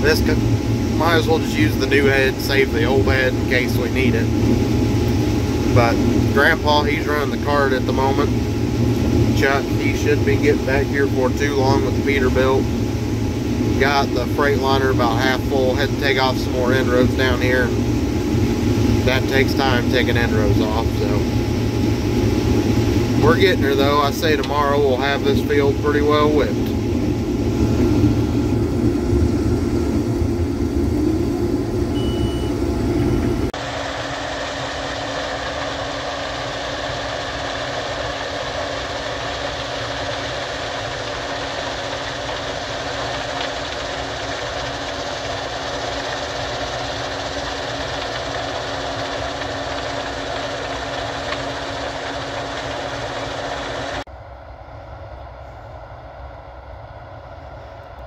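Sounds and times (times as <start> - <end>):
combine engine and threshing drone: 0.0 - 58.0.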